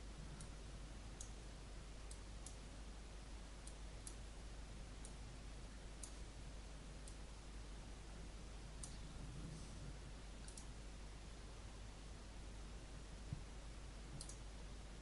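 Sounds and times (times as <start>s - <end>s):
steady hiss and hum: 0.0s - 15.0s
computer mouse clicks: 10.4s - 10.8s, 14.2s - 14.5s.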